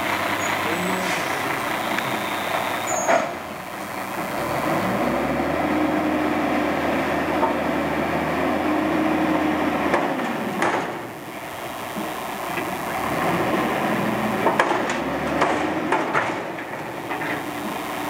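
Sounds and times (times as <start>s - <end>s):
truck engine revving with whine: 0.0s - 18.0s.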